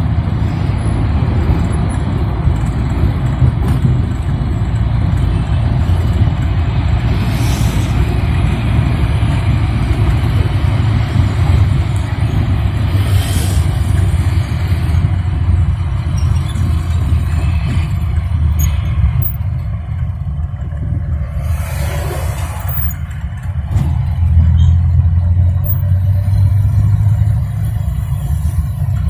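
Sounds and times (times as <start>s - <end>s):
minibus engine and road rumble: 0.0s - 29.0s.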